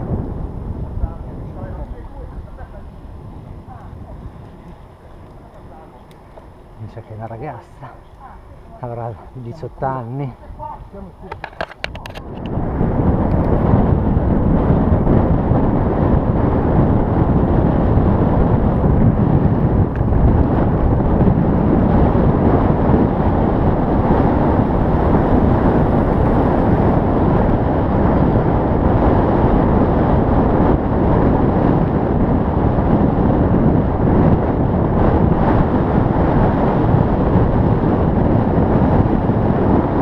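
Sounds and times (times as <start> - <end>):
wind rushing over microphone: 0.0 - 40.0.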